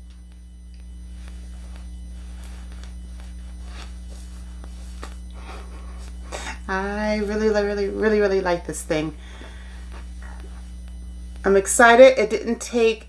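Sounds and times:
electrical mains hum: 0.0 - 13.0
faint soft rustles: 0.2 - 8.1.

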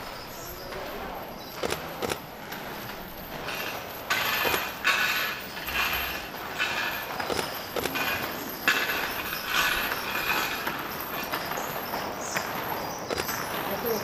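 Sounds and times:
wooden cross scraping on stone: 2.8 - 11.7.

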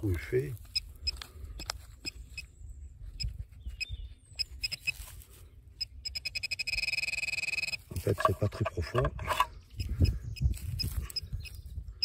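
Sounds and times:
metal detector pinpointer beeps: 3.2 - 5.1, 5.8 - 11.6
soil rustling and clicking: 7.8 - 9.6.

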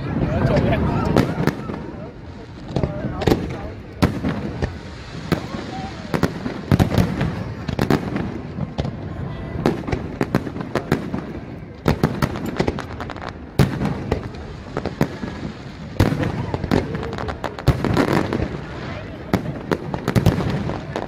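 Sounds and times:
fireworks bangs: 0.0 - 21.0.

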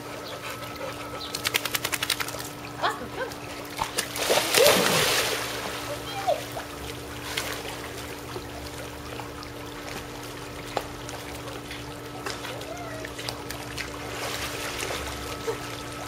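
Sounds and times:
steady low hum: 0.0 - 16.0
water sloshing and lapping: 0.0 - 16.0
dog splashing into a pool: 1.4 - 2.6, 3.3 - 8.3.

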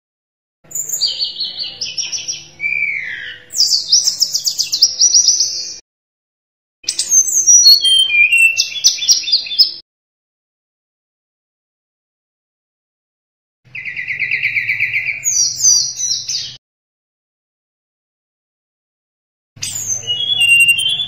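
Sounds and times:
flycatcher singing whistled trills: 6.9 - 9.8, 19.6 - 21.0.

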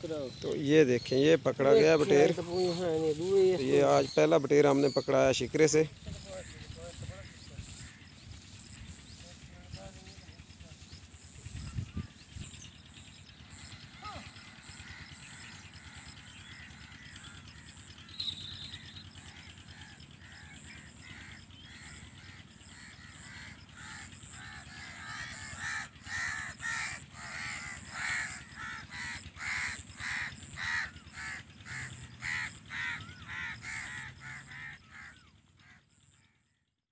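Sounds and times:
faint high rhythmic chirping: 0.0 - 27.1
crows cawing: 6.1 - 8.6, 13.5 - 36.5.

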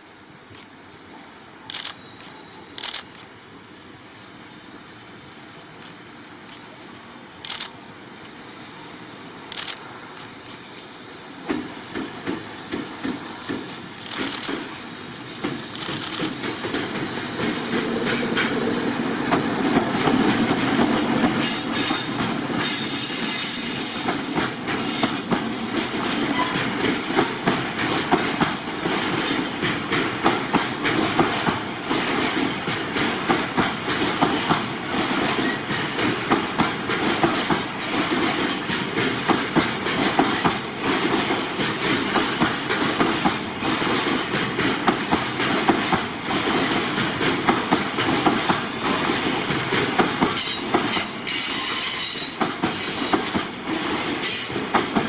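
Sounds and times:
train rumble: 1.4 - 55.0
train wheels clattering: 11.4 - 55.0.

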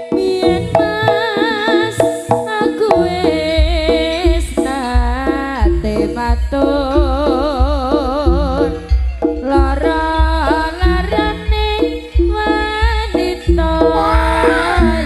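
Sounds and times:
deep drum beats: 0.0 - 15.0
pitched percussion: 0.0 - 15.0
wavering melody line: 13.9 - 15.0.

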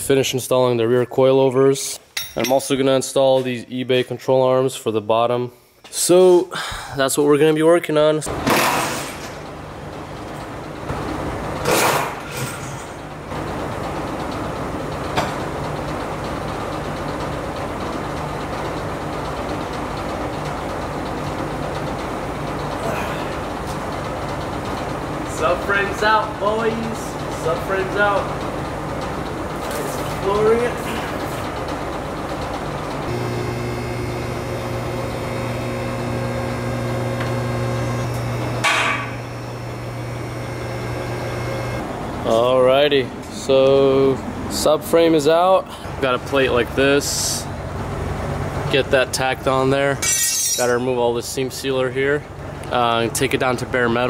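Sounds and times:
machine humming and ticking: 13.0 - 42.5.

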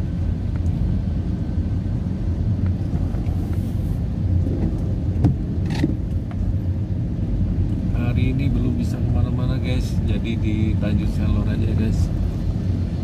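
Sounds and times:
car driving on a wet road: 0.0 - 13.0
light ticks: 0.5 - 0.8.

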